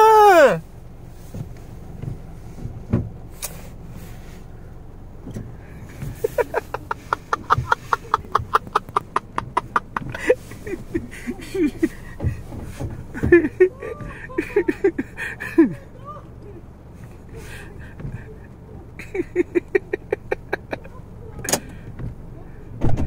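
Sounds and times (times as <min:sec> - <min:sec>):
low car cabin rumble: 0:00.0 - 0:23.0
person laughing hard: 0:06.0 - 0:12.5, 0:13.2 - 0:15.9, 0:19.0 - 0:20.9.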